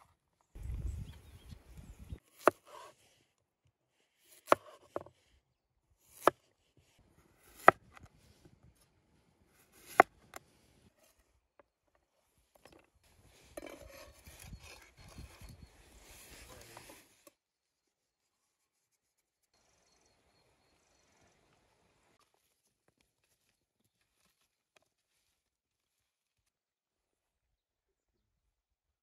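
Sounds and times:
knife scraping slices across board: 2.3 - 3.0, 6.1 - 8.0, 9.6 - 10.4, 13.1 - 17.3.

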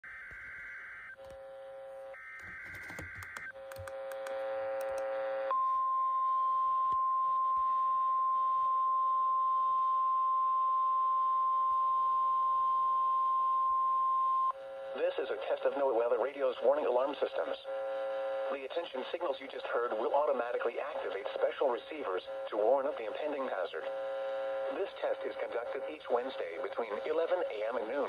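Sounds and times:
steady warning alarm tone: 0.0 - 6.2
low buzzing tone: 0.1 - 2.6.

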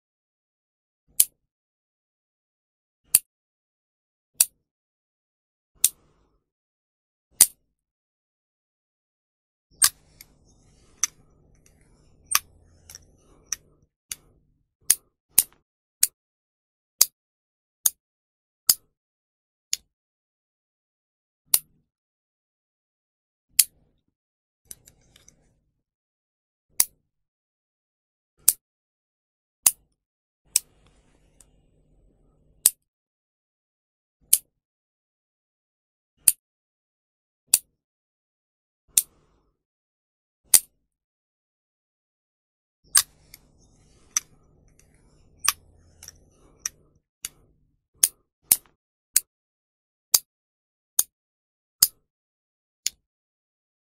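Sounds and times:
nail clipper clicking: 44.0 - 47.4, 48.0 - 49.3.

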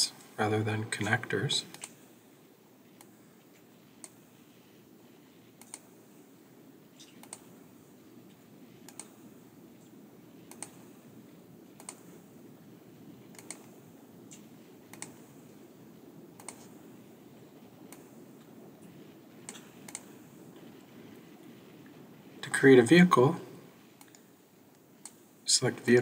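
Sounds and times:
faint steady hum: 0.0 - 26.0
computer mouse clicking: 4.0 - 4.2, 5.6 - 5.9, 7.0 - 7.5, 8.8 - 9.2, 10.4 - 10.8, 11.8 - 12.1, 13.3 - 15.2, 16.4 - 16.8, 17.8 - 18.1, 19.4 - 20.1, 24.0 - 24.2, 25.0 - 25.2.

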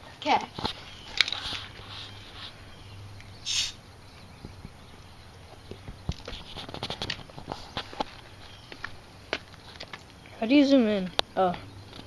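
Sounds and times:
plastic bottle noise burst: 3.4 - 3.8.

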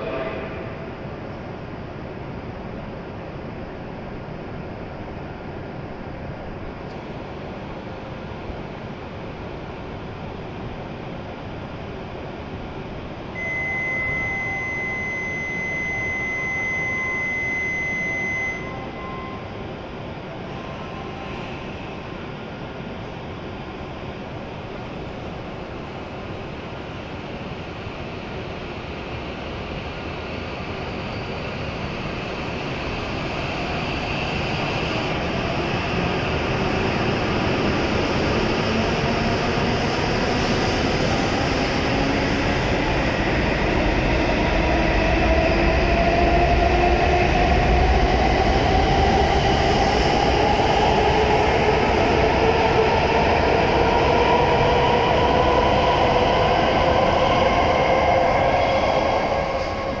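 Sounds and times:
train rumble: 0.0 - 13.5, 18.6 - 60.0.

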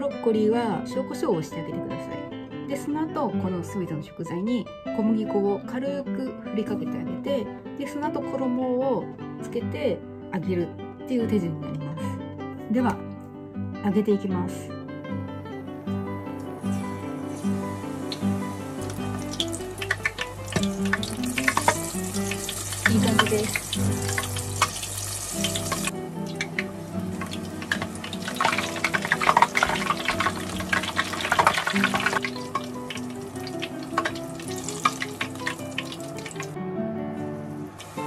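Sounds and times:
classical guitar music: 14.7 - 38.0
deep-frying crackling sizzle: 16.5 - 36.6, 37.4 - 38.0.

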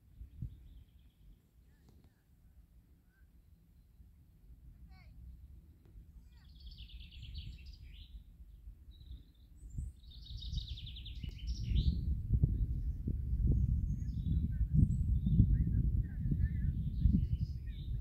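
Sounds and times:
wind rumble on microphone: 0.0 - 1.1, 6.6 - 18.0
songbird chirping and trilling: 0.2 - 2.2, 6.2 - 18.0.

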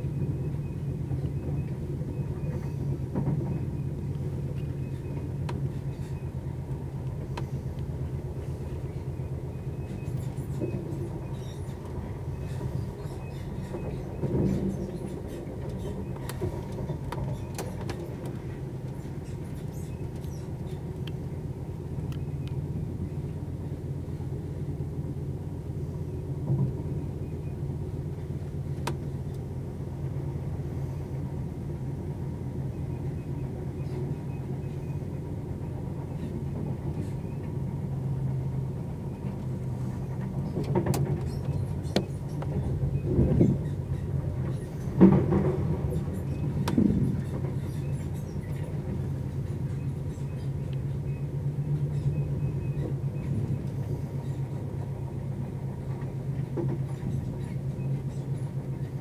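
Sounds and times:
train wheels rumbling on track: 0.0 - 59.0
sharp clicks of train wheels: 10.1 - 21.3, 28.4 - 29.5, 33.8 - 59.0.

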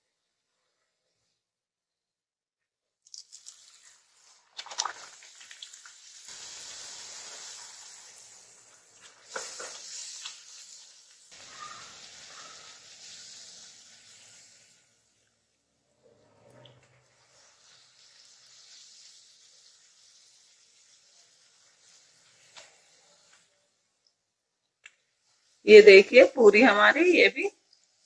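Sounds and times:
puri sizzling in hot oil: 3.0 - 15.4, 16.4 - 23.5, 25.0 - 25.7, 27.6 - 28.0
sharp oil crackles: 3.0 - 25.7, 27.5 - 28.0.

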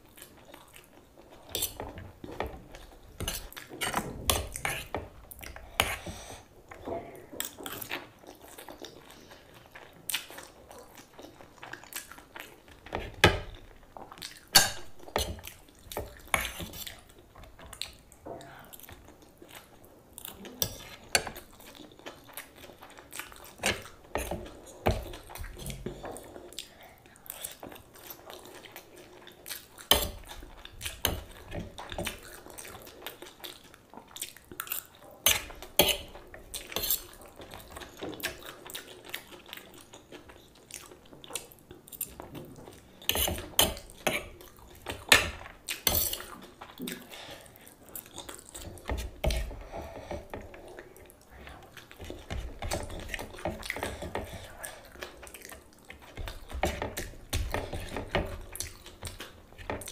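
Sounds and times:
close-up chewing: 0.0 - 59.9
fork scraping on ceramic plate: 36.7 - 37.2, 43.1 - 44.3.

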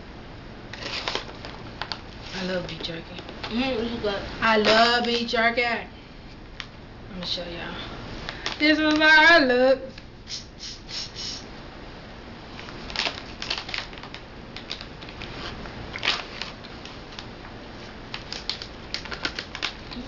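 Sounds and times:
plastic snack bag crinkling: 0.8 - 3.6, 12.6 - 15.3, 15.9 - 20.0.

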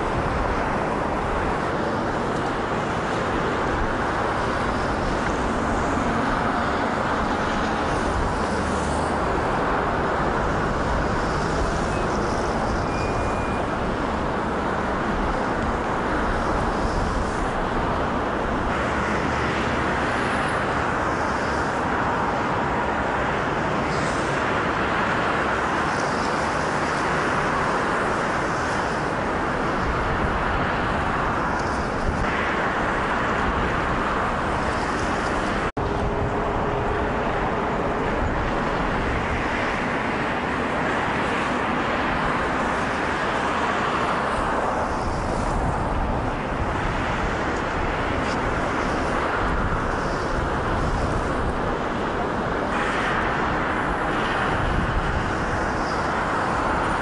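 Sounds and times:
city traffic noise: 0.0 - 57.0.

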